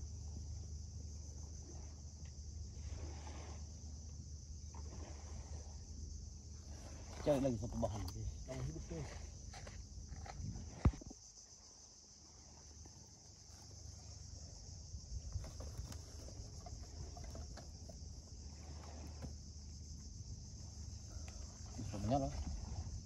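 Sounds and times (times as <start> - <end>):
insect chirring: 0.0 - 23.0
soft knocks and rustles: 15.2 - 19.4.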